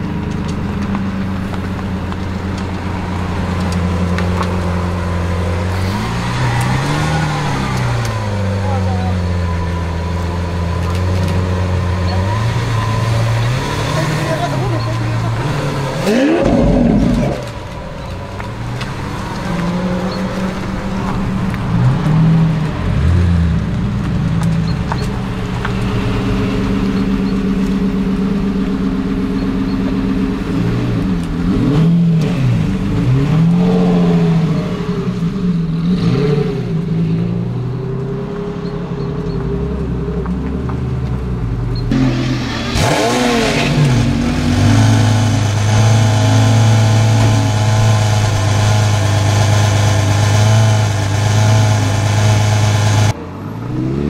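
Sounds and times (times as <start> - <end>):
sports car engine idling and revving: 0.0 - 54.0
sports car engine high rev: 11.4 - 17.5, 25.8 - 37.3, 41.9 - 54.0.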